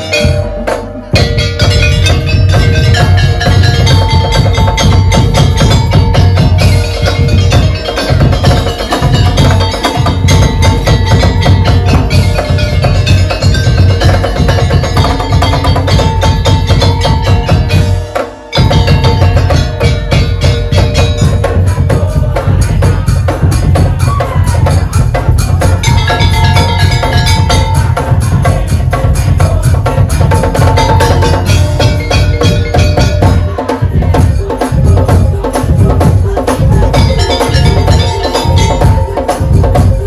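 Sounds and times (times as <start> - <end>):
ringing melodic line: 0.0 - 24.0, 24.6 - 40.0
percussion ensemble drumming: 0.0 - 40.0.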